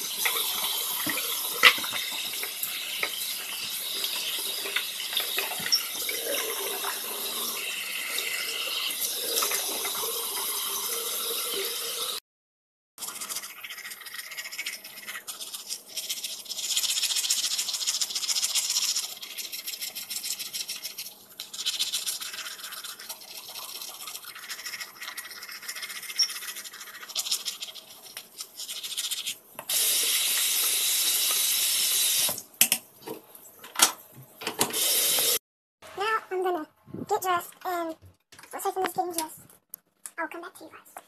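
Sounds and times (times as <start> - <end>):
toothbrush scrubbing teeth: 0.0 - 10.9, 13.0 - 31.4.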